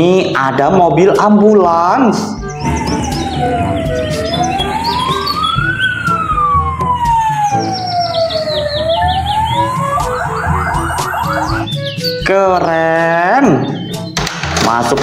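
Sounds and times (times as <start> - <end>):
quick chirping sounds: 2.4 - 6.4, 7.0 - 12.3
wailing siren: 2.5 - 12.1.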